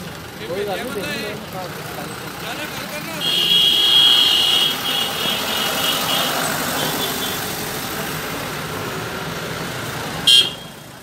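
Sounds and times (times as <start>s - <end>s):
bus engine running: 0.0s - 11.0s
road traffic: 0.0s - 11.0s.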